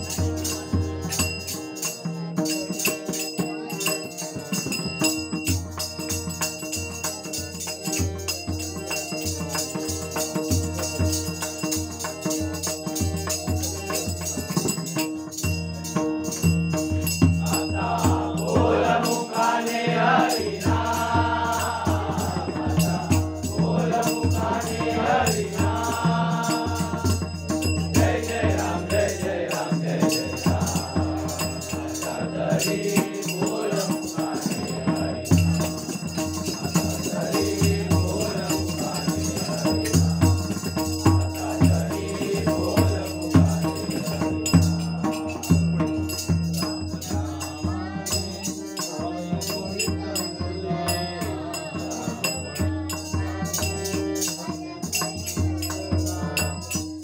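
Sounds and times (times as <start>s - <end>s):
hand drum: 0.0s - 19.6s, 20.2s - 51.2s, 51.8s - 57.0s
harmonium: 0.0s - 57.0s
small jingling cymbals: 0.0s - 57.0s
girl singing: 52.1s - 56.4s.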